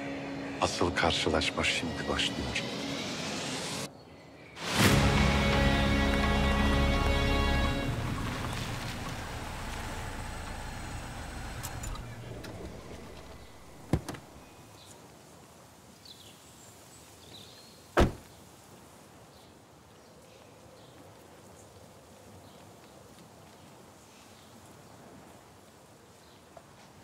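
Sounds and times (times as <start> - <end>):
background music: 0.0 - 3.9, 4.6 - 9.6
sharp thumps: 11.6 - 14.4.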